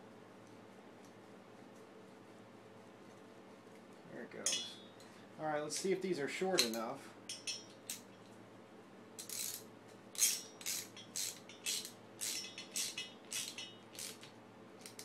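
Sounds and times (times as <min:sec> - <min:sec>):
socket ratchet clicking: 0:10.2 - 0:15.0.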